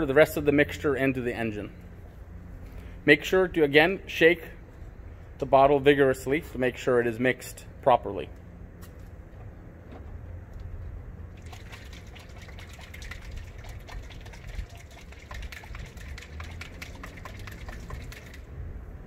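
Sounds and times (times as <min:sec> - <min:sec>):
liquid sloshing in shaken bottle: 0:11.3 - 0:18.5.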